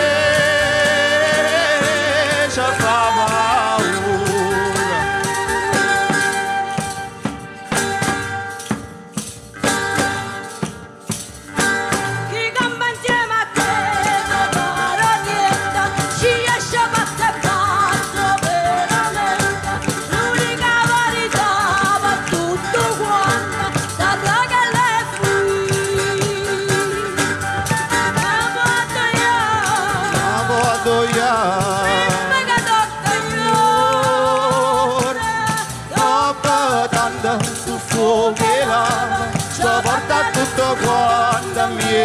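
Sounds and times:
woman singing: 0.0 - 7.7, 11.9 - 42.0
flute melody: 0.0 - 8.7, 13.6 - 37.4
rattling hand percussion: 0.0 - 42.0.

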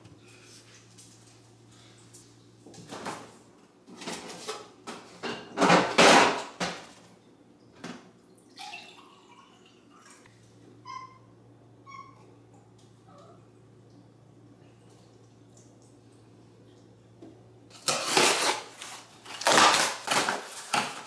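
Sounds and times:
water pouring into mug: 8.5 - 10.2.

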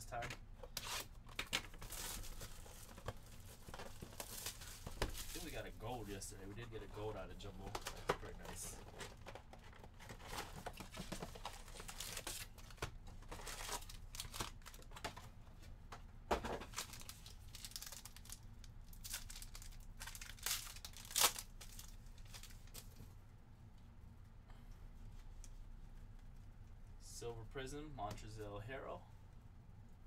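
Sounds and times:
plastic wrapping crinkling: 0.8 - 15.0, 16.7 - 23.0
plastic tearing: 16.7 - 22.9.

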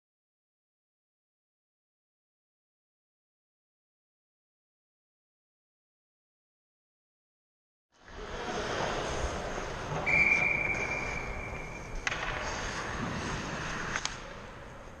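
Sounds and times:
ice rink background noise: 8.0 - 15.0
referee's whistle: 10.0 - 12.0.

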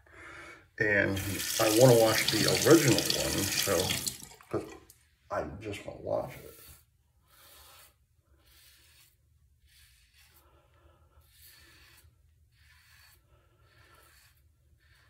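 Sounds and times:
razor scraping stubble: 1.2 - 4.1, 6.1 - 15.0.

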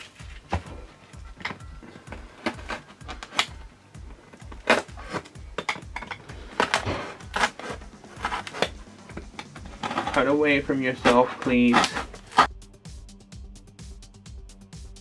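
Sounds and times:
background music with low beat: 0.0 - 15.0
knife cutting cardboard: 6.4 - 12.5.

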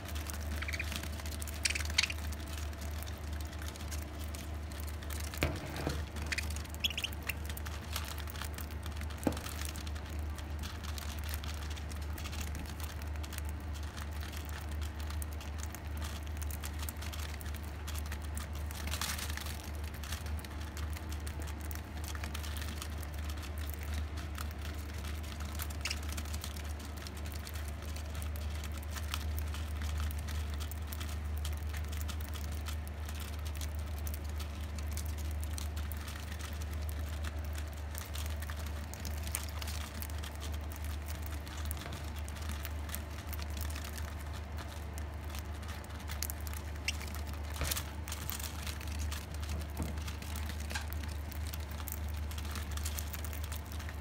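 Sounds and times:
beak clicks and taps on seed: 0.0 - 54.0
steady low hum: 0.0 - 54.0.

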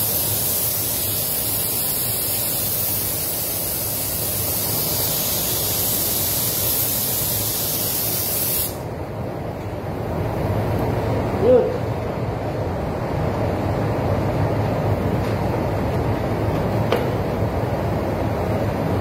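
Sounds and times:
paint spray gun hissing: 0.0 - 8.8.

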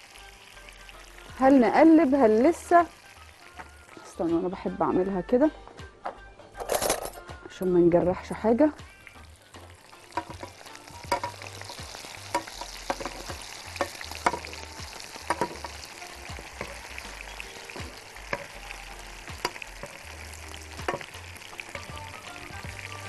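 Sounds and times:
meatballs sizzling in a frying pan: 0.0 - 5.5, 7.8 - 23.0
metal utensils scraping a pan: 10.1 - 22.1.

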